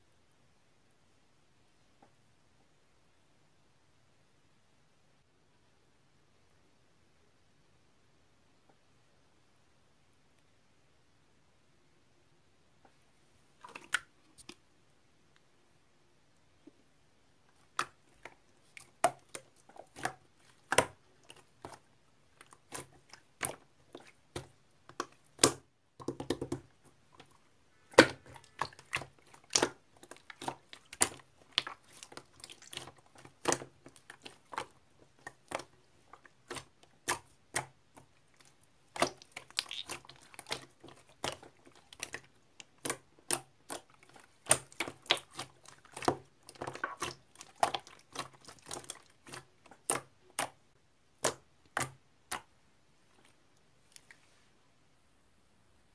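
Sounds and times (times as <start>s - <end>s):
slime popping and clicking: 38.9s - 40.6s.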